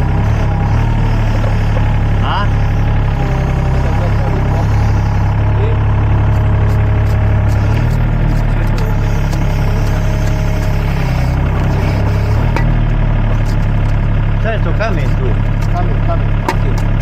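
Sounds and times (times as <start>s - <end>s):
diesel engine running: 0.0s - 17.0s
hydraulics lifting bucket: 0.0s - 17.0s.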